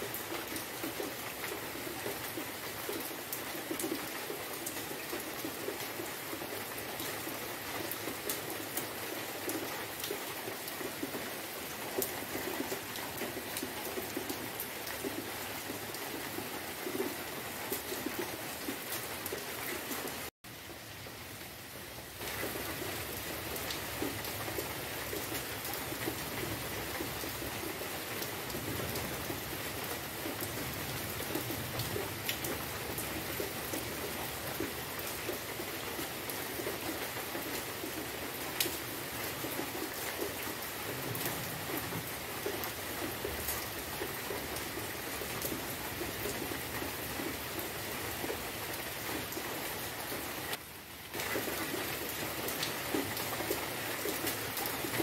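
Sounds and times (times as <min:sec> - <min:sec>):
rain falling on trees: 0:00.0 - 0:55.0.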